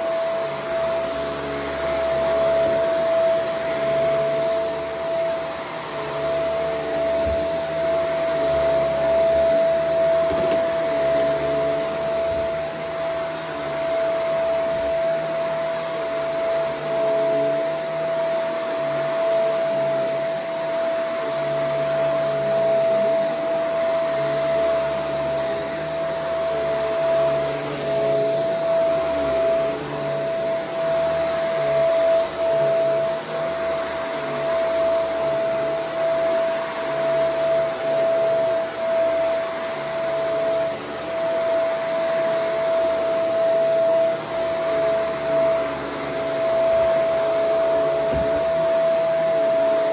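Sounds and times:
vacuum cleaner running on carpet: 0.0 - 49.9.

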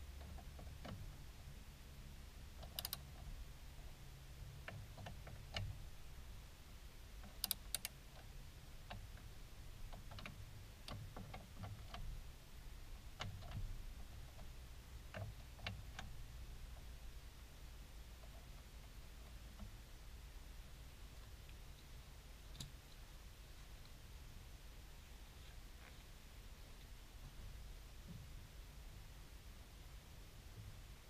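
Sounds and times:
socket ratchet clicking: 2.6 - 3.1, 7.2 - 8.0.

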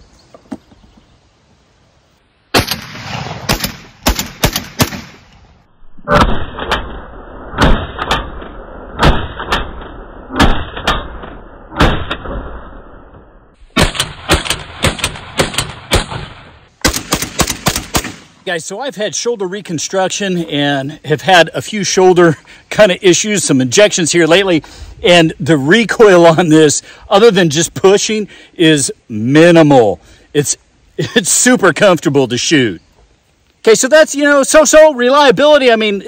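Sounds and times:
shotgun shots: 2.5 - 5.3, 6.1 - 12.6, 13.7 - 18.4
person speaking: 18.4 - 32.8.

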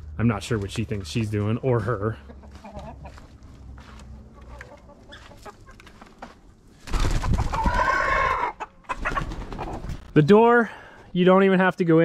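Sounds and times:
hens clucking: 1.0 - 6.6, 7.2 - 10.0.

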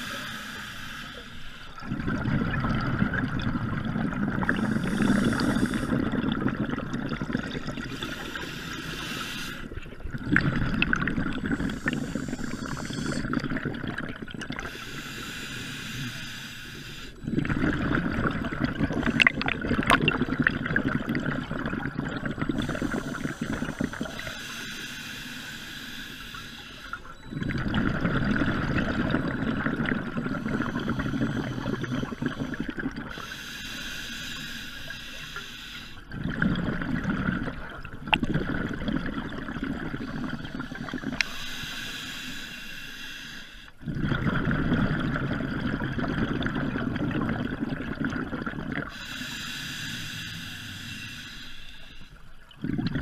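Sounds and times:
regulator hissing inhale: 0.0 - 1.8, 4.5 - 6.0, 7.8 - 9.8, 11.4 - 13.3, 14.6 - 17.3, 22.5 - 27.2, 30.3 - 36.1, 40.3 - 43.8, 48.9 - 52.4
exhaled bubbles burbling: 1.8 - 8.4, 9.0 - 14.8, 17.2 - 24.5, 27.2 - 33.4, 36.0 - 41.3, 43.8 - 49.3, 52.4 - 53.0.

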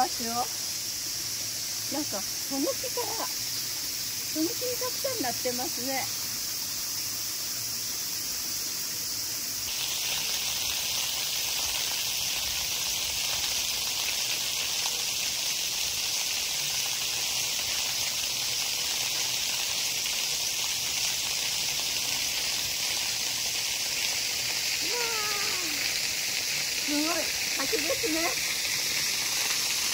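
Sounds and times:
waterfall hiss: 0.0 - 29.9.

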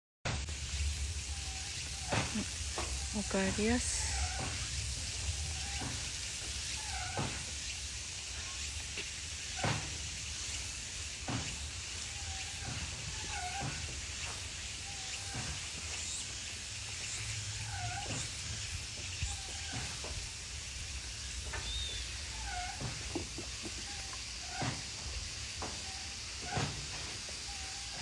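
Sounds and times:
steady hiss: 0.3 - 28.0
monkeys giving coo calls: 1.2 - 7.5, 12.0 - 16.6, 17.2 - 20.5, 21.4 - 24.9, 27.4 - 28.0.

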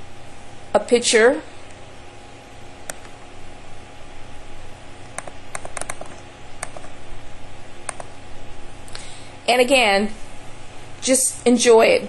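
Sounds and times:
low electrical hum: 0.0 - 12.0
computer mouse clicking: 2.9 - 3.1, 5.1 - 7.0, 7.8 - 8.1.

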